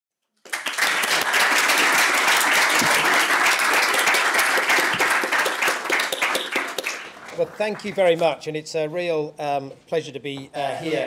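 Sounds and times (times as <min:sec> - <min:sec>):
audience applauding: 0:00.4 - 0:08.2.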